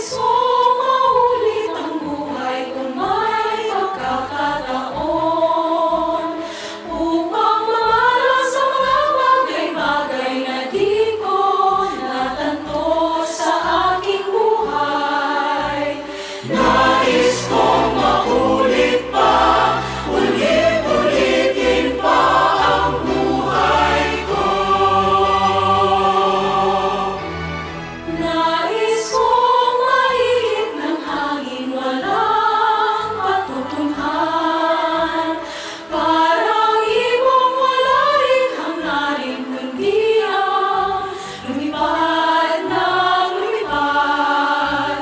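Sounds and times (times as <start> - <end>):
choir singing: 0.0 - 45.0
strings: 0.0 - 45.0
brass: 16.4 - 28.6
timpani: 16.4 - 28.6.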